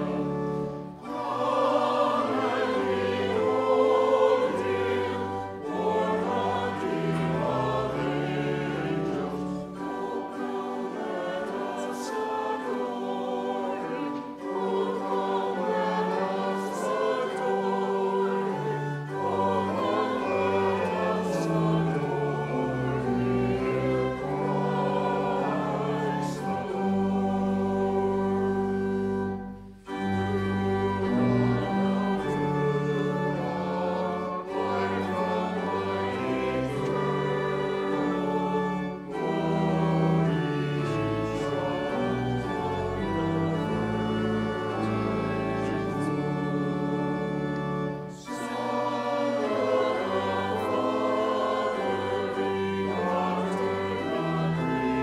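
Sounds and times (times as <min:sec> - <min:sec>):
congregation and choir singing hymn: 0:00.0 - 0:55.0
musical accompaniment: 0:00.0 - 0:55.0.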